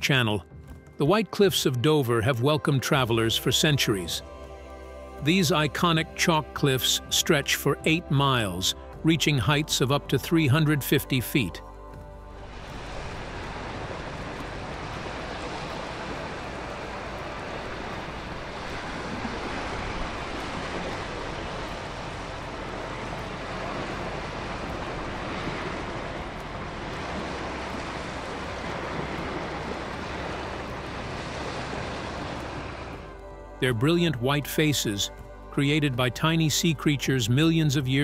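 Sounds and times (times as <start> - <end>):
sea surf rushing against shore: 12.4 - 33.2.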